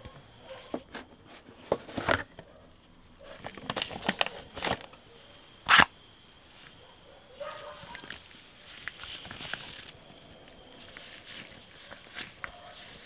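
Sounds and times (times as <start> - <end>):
plastic packaging crinkling: 8.8 - 10.0.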